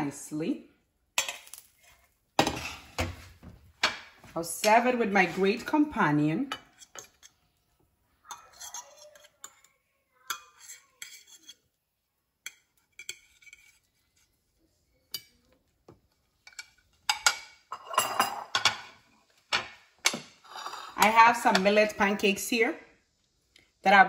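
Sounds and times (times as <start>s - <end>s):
fork scraping ceramic plates: 1.2s - 3.2s, 6.5s - 7.6s, 8.2s - 11.8s, 12.4s - 14.4s, 16.3s - 21.8s
dishes clattering: 2.4s - 4.3s, 16.3s - 21.8s.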